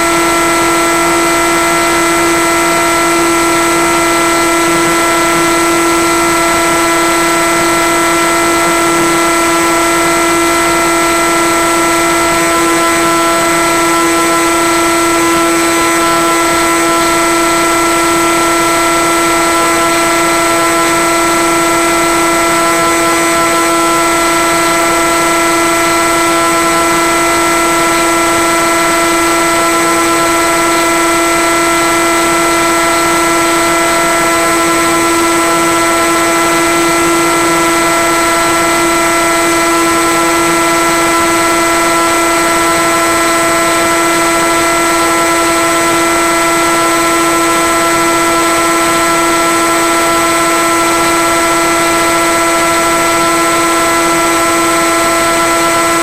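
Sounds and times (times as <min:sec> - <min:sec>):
electric motor and propeller hum: 0:00.0 - 0:56.0.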